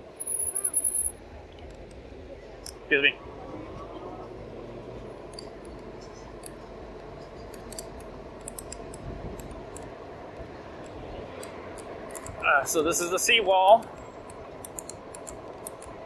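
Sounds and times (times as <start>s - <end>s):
bike rolling and wind noise: 0.0s - 16.0s
light clicks and ticks: 5.3s - 12.5s, 13.7s - 16.0s.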